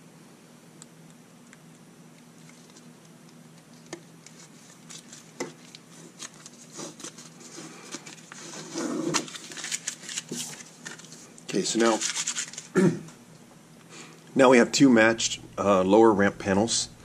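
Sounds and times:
paper peeling and crinkling: 3.6s - 12.8s.

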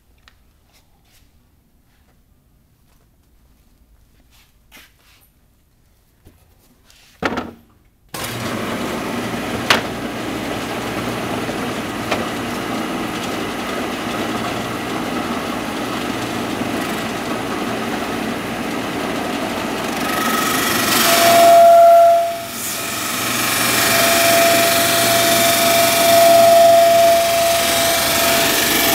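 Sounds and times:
drum sander running: 8.2s - 28.9s
steady high tone: 20.0s - 28.9s.

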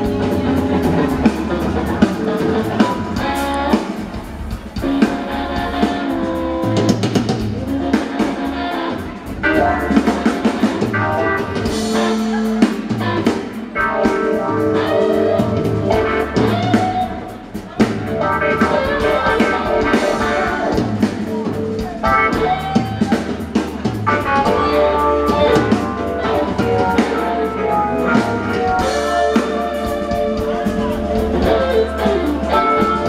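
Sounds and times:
bass guitar: 0.0s - 33.0s
drum kit: 0.0s - 33.0s
electric guitars: 0.0s - 33.0s.

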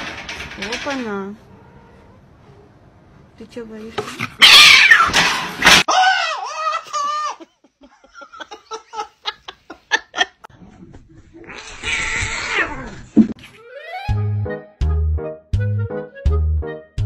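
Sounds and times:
cat meowing: 4.4s - 5.1s, 11.5s - 13.0s.

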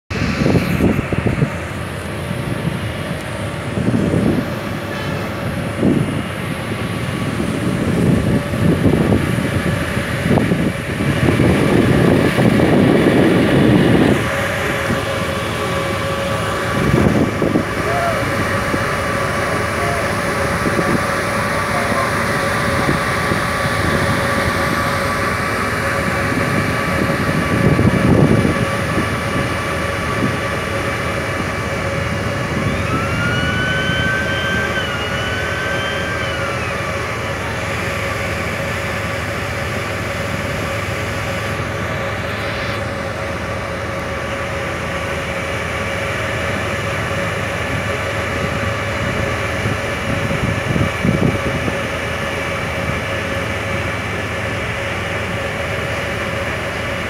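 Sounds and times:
wind buffeting microphone: 0.1s - 38.7s, 48.7s - 52.1s
ship engines droning: 0.1s - 57.0s.

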